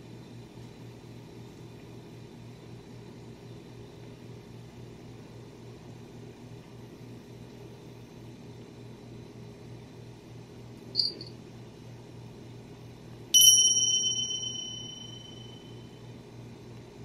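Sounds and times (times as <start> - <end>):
metallic bell ding: 13.4 - 15.8
faint short tinkle: 13.4 - 15.9.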